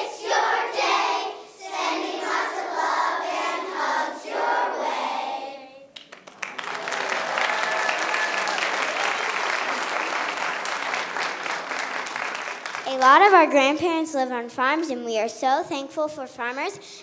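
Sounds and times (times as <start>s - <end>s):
children's choir singing: 0.0s - 5.8s
audience applause: 6.0s - 13.0s.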